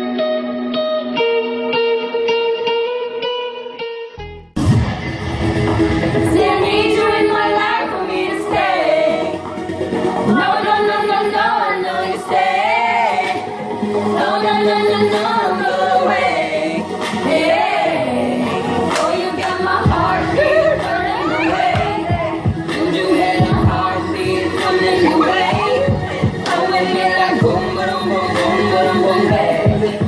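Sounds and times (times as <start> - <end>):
women singing: 6.2 - 30.0.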